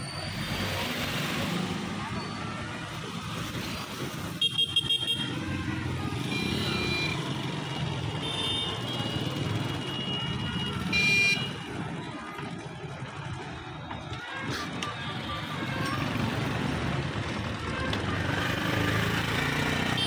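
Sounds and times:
vehicle horns: 0:04.2 - 0:05.4, 0:06.2 - 0:11.8, 0:19.6 - 0:20.0.

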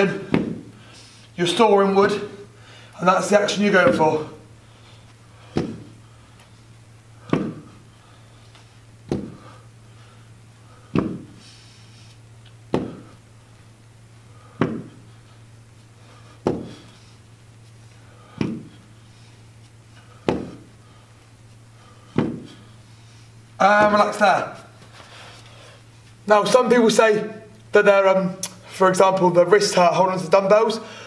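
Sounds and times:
steady low hum: 0:00.0 - 0:31.0
dumbbells knocking on floor: 0:10.9 - 0:11.3, 0:14.6 - 0:15.0, 0:16.4 - 0:16.7, 0:22.2 - 0:22.5.

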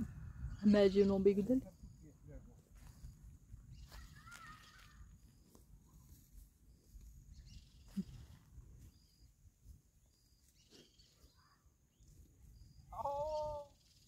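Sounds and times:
faint high chirping: 0:02.9 - 0:14.0.

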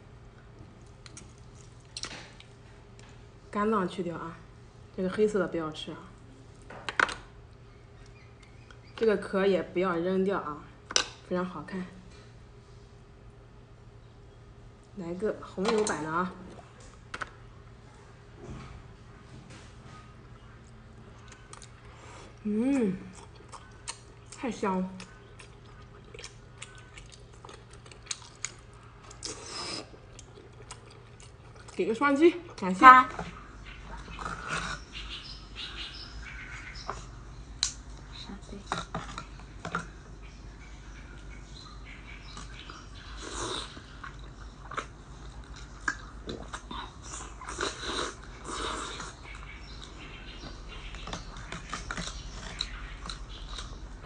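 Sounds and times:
chewing clicks and smacks: 0:00.8 - 0:03.1, 0:20.6 - 0:21.9, 0:23.1 - 0:31.8, 0:36.8 - 0:38.1, 0:43.7 - 0:48.4, 0:49.0 - 0:54.0.

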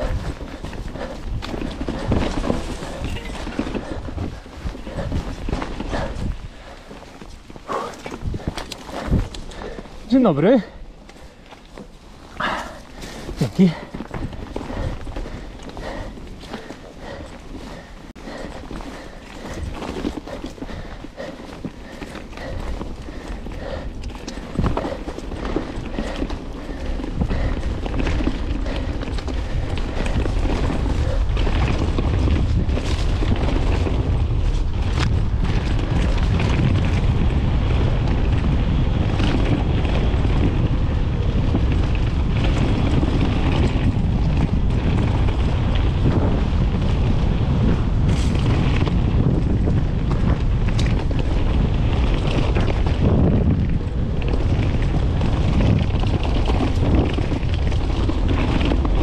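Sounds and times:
bike knocking and rattling: 0:00.0 - 0:59.0
bike tyres rumbling on dirt: 0:00.0 - 0:59.0
wind buffeting microphone: 0:00.0 - 0:59.0.

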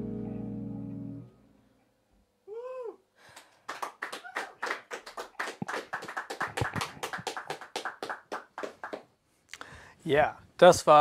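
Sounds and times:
people clapping: 0:03.3 - 0:09.1.

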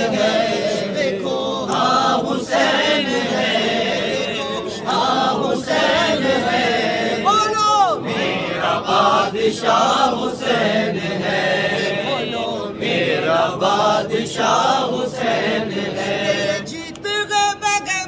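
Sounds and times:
men chanting devotional song: 0:00.0 - 0:18.0.

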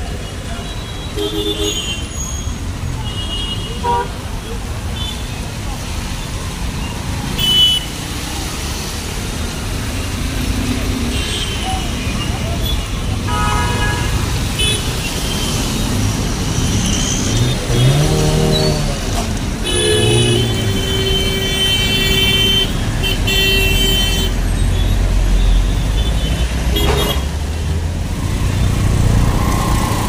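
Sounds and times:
steady traffic rumble: 0:00.0 - 0:30.0
vehicles passing on wet street: 0:00.0 - 0:30.0
vehicle horn: 0:13.3 - 0:15.4, 0:19.6 - 0:24.4.

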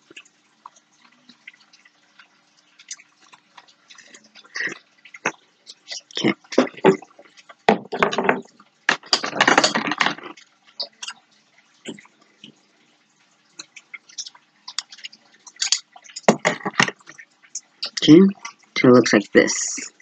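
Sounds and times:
faint steady hum: 0:00.0 - 0:20.0
small clicks and taps: 0:13.6 - 0:18.6.

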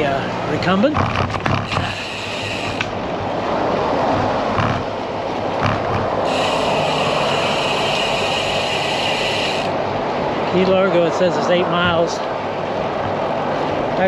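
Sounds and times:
highway traffic: 0:00.0 - 0:14.0
wind and road noise: 0:00.0 - 0:14.0
high steady hiss: 0:01.6 - 0:03.0, 0:06.2 - 0:09.8.

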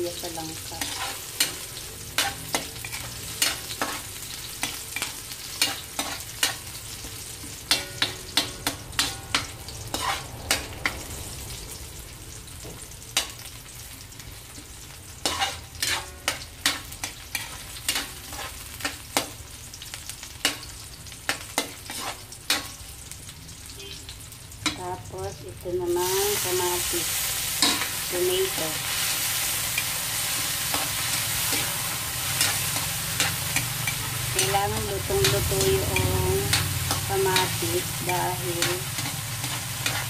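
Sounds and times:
oil sizzling: 0:00.0 - 0:40.0
metal spatula scraping wok: 0:00.6 - 0:11.0, 0:15.2 - 0:19.0, 0:21.6 - 0:22.8, 0:26.0 - 0:40.0.

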